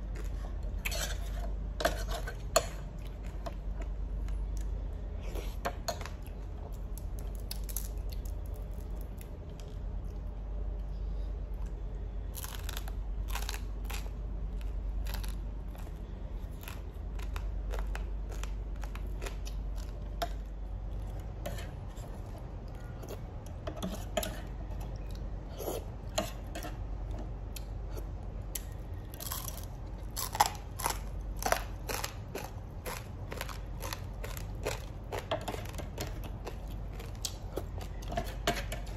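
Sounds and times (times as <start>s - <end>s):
chewing and biting bread: 12.4s - 20.2s, 28.6s - 38.9s.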